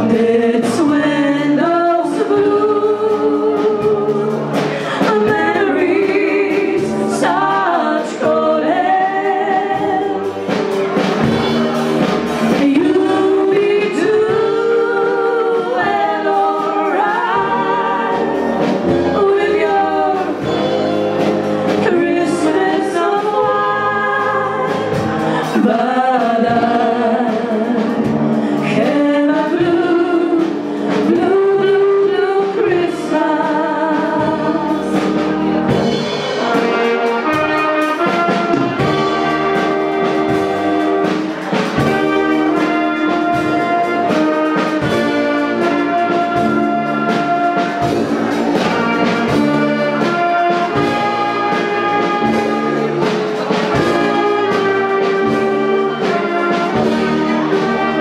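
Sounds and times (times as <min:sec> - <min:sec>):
women singing into microphones: 0:00.0 - 0:10.5, 0:12.4 - 0:20.7, 0:21.7 - 0:35.8
steady drum beat: 0:00.0 - 0:58.0
wind band playing: 0:00.0 - 0:58.0.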